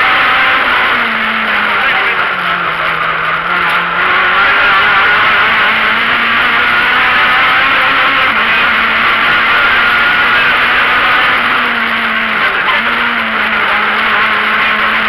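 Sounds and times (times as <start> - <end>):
rally car engine revving: 0.0 - 15.0
road and wind noise: 0.0 - 15.0.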